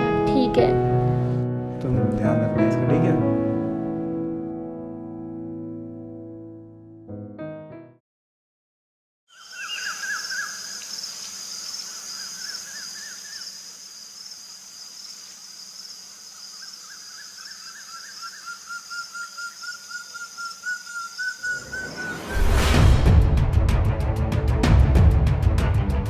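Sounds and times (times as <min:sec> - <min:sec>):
bird chirping: 0:09.3 - 0:13.6, 0:16.3 - 0:22.5
insect trill: 0:09.3 - 0:22.5.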